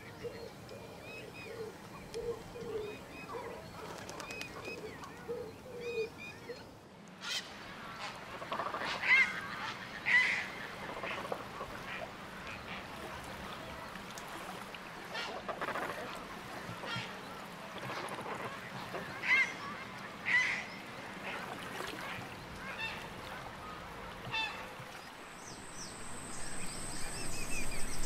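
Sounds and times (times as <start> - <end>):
waterfowl calling: 17.9 - 24.8
birds chirping: 24.4 - 28.0.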